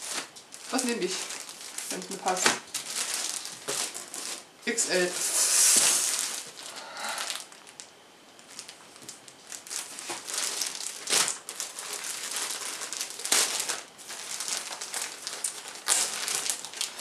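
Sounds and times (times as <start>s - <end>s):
plastic bag crinkling: 0.0s - 17.0s.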